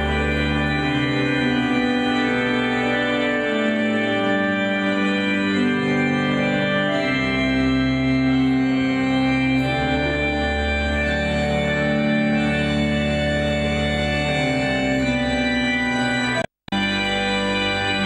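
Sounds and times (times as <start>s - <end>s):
organ playing held chords: 0.0s - 18.0s.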